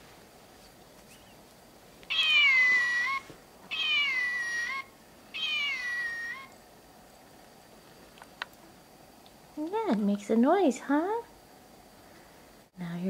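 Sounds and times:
toy cat recorded meow: 2.1 - 6.5.

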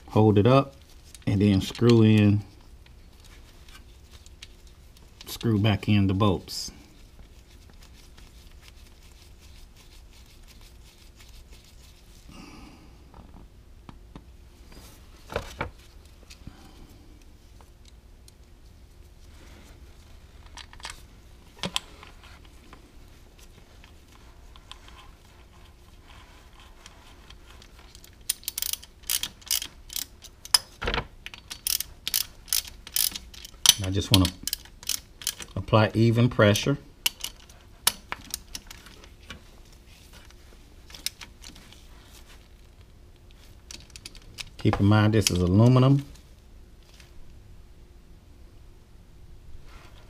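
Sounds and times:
bolts being threaded by hand: 0.1 - 5.9, 20.0 - 45.8
socket ratchet clicking: 27.9 - 35.6, 37.0 - 38.7.

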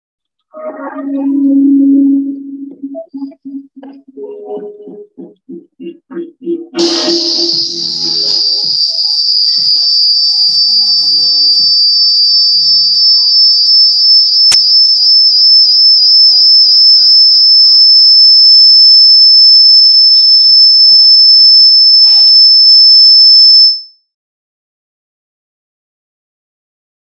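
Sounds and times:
faint video soundtrack: 0.5 - 11.6
high-pitched whine: 0.6 - 16.7.

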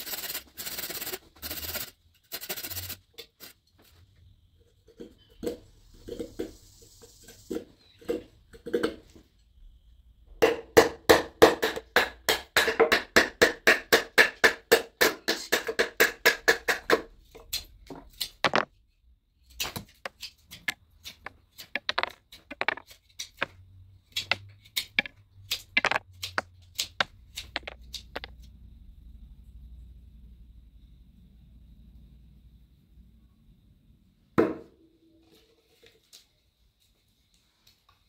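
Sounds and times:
knife scraping wood shavings: 0.0 - 3.6.

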